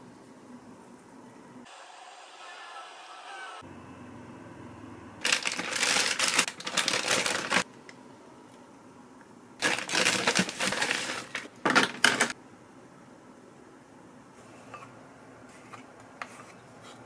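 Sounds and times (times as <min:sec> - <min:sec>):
plastic packaging crinkling: 0:05.2 - 0:07.7, 0:09.6 - 0:12.4.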